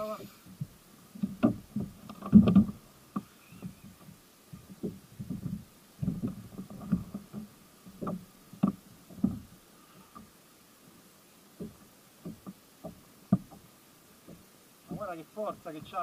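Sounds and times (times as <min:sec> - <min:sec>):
low knocks on kayak: 0:00.5 - 0:09.5, 0:11.6 - 0:13.6.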